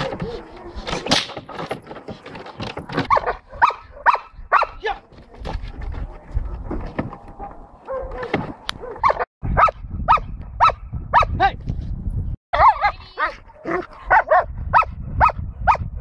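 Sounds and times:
dog barking: 0:03.0 - 0:04.8, 0:07.8 - 0:11.4, 0:12.6 - 0:15.9.

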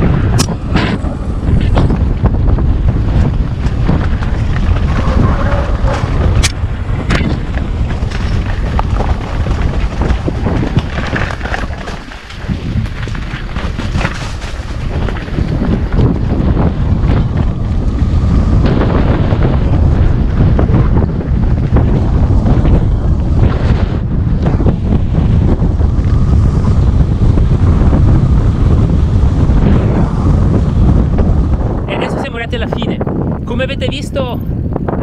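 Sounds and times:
wind buffeting microphone: 0:00.0 - 0:35.0
bike clattering over ground: 0:03.0 - 0:17.9.

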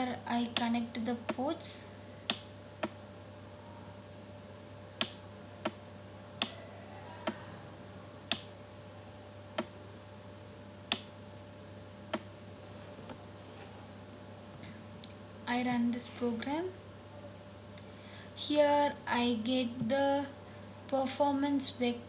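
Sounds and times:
faint steady hum: 0:00.0 - 0:22.0
computer mouse clicking: 0:08.3 - 0:08.5.

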